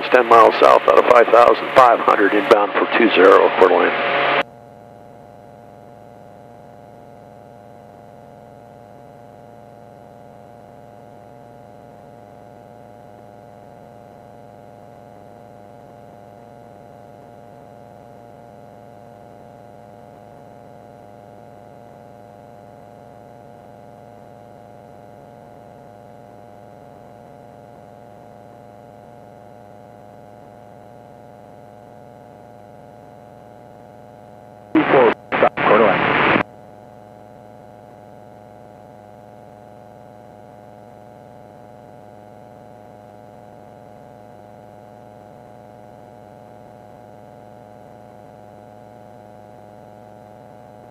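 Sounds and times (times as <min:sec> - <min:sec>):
light aircraft engine droning: 0:00.0 - 0:04.4.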